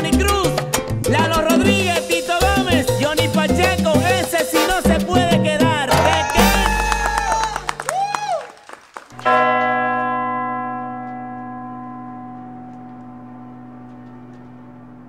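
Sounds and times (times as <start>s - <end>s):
salsa music: 0.0s - 8.3s
deep bell stroke ringing: 9.2s - 15.0s.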